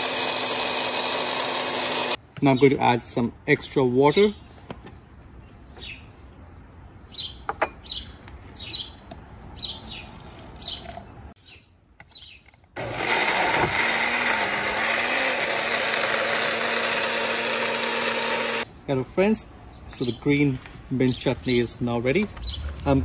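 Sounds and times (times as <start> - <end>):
blender motor running: 0.0 - 2.2, 12.8 - 18.6
birds chirping: 2.2 - 12.9, 19.3 - 23.0.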